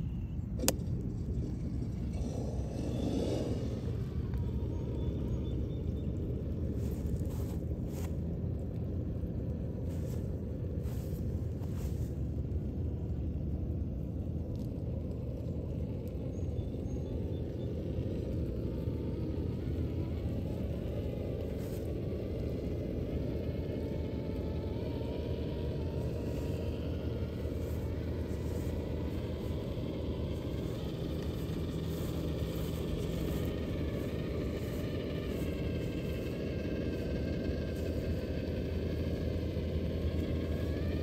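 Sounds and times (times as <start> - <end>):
electric motor whine: 0.0 - 41.0
low rumble: 0.0 - 41.0.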